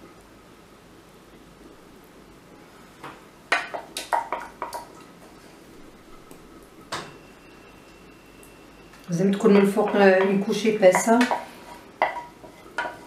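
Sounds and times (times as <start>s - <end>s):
wooden spatula knocking on glass dish: 9.5s - 13.0s.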